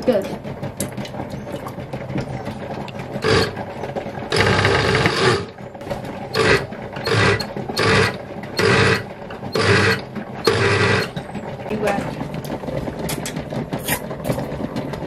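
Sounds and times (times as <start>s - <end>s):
blender motor pulsing: 2.4s - 11.3s.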